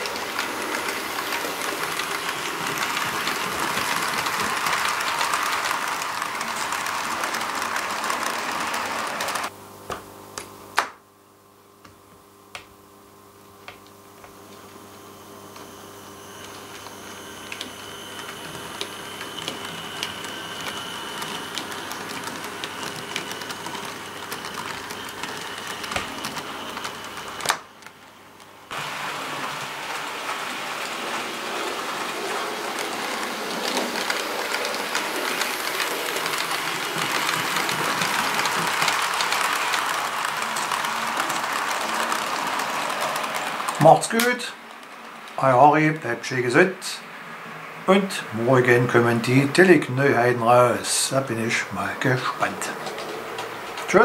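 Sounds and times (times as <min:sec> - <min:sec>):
light mechanical whirr: 0:00.0 - 0:09.5, 0:13.8 - 0:46.7
model train wheels clicking: 0:00.0 - 0:09.5, 0:15.6 - 0:27.9, 0:30.8 - 0:46.2, 0:48.8 - 0:54.0.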